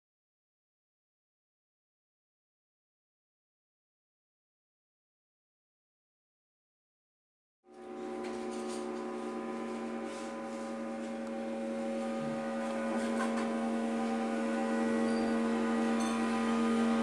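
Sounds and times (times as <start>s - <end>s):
bowed metal ringing drone: 7.7s - 17.0s.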